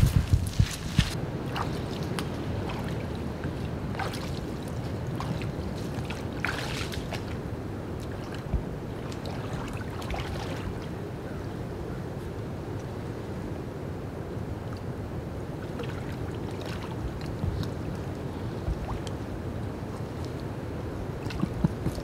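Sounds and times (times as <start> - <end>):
boots squelching through mud: 0.0 - 2.9.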